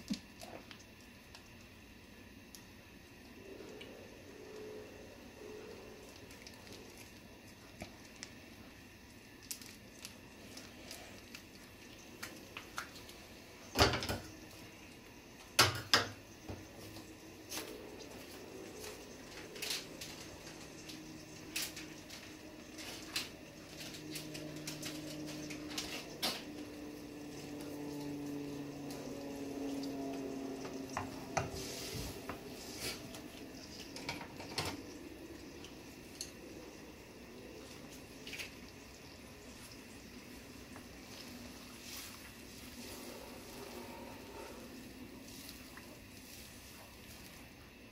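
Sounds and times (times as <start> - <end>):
soup simmering with ticks and pops: 0.0 - 31.6, 32.2 - 47.9
low hum: 16.1 - 47.4.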